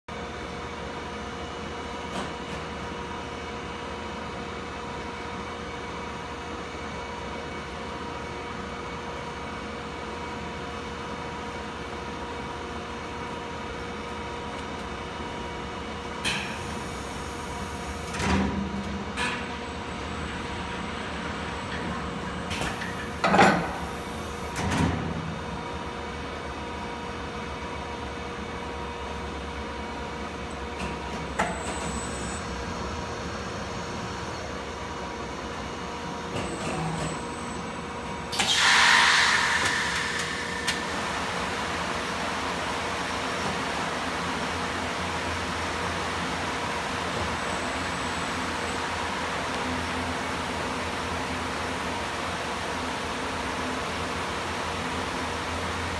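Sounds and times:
hissing air bursts: 38.4 - 41.5.

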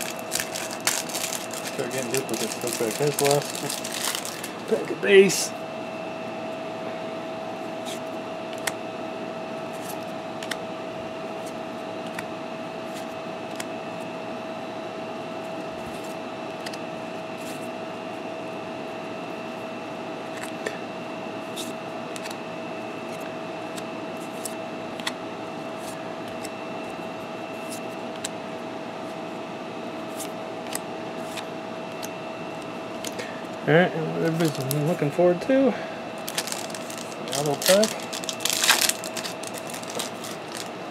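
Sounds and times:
steady hum: 0.0 - 40.9
cards clicking and tapping: 36.3 - 40.7.

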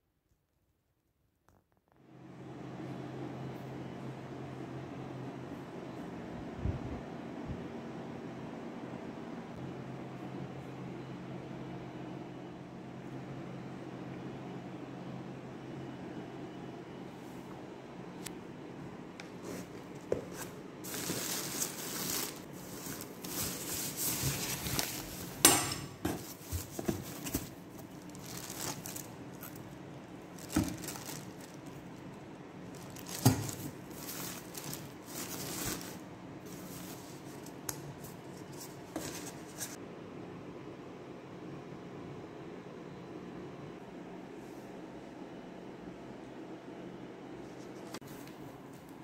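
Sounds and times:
packaging rustling and crinkling: 19.4 - 25.5, 26.2 - 39.8.

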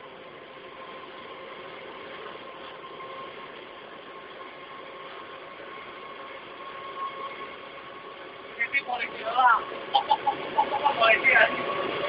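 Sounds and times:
locomotive engine running noise: 0.0 - 12.0.

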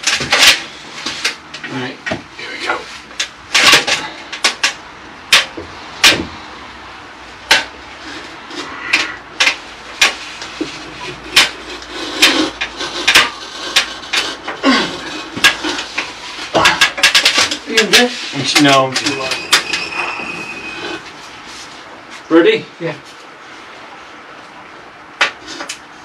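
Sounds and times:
scraping: 7.4 - 22.2.

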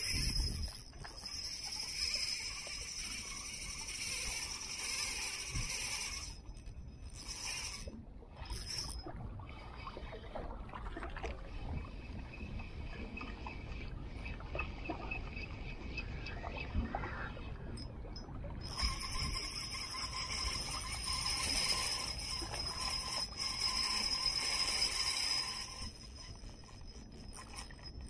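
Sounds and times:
fishing reel whirring: 0.0 - 9.1, 18.6 - 28.0
low rumble of water: 0.0 - 28.0.

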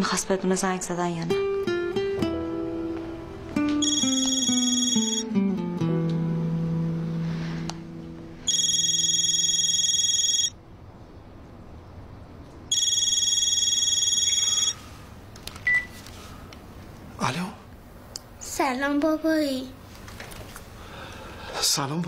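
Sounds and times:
short beep: 3.8 - 5.2, 8.5 - 10.5
telephone ringing electronic ringtone: 3.8 - 5.3, 8.4 - 10.6, 12.7 - 14.8.

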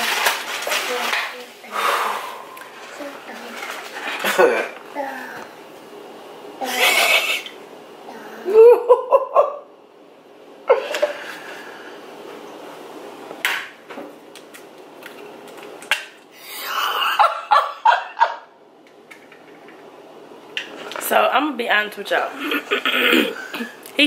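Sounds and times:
person laughing: 6.6 - 7.6, 8.5 - 9.6, 10.7 - 11.3, 16.5 - 18.4, 22.4 - 23.8.

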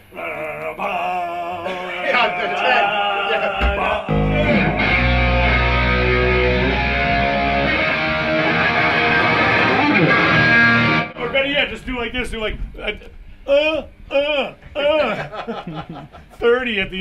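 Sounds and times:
bass guitar: 3.6 - 11.2
electric guitar: 3.6 - 11.2
rock band playing live: 4.1 - 11.1.

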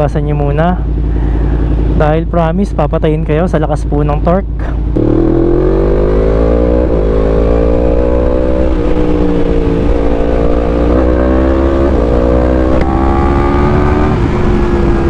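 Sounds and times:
motorcycle engine accelerating: 3.8 - 15.0
wind rush: 5.6 - 15.0.

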